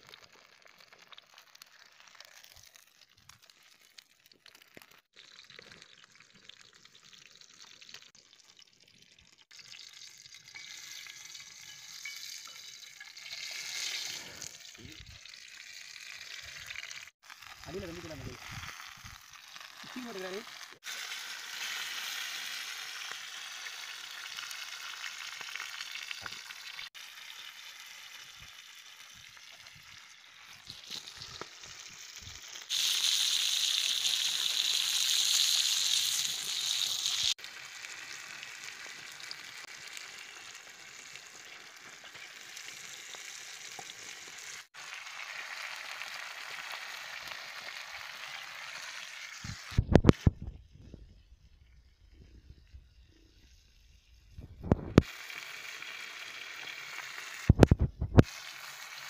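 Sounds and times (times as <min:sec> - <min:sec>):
fish sizzling in oil: 0:00.0 - 0:50.4, 0:51.2 - 0:59.0.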